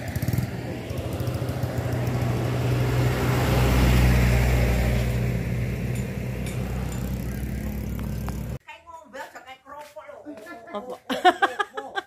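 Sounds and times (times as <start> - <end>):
vehicle passing on road: 0.0 - 8.6.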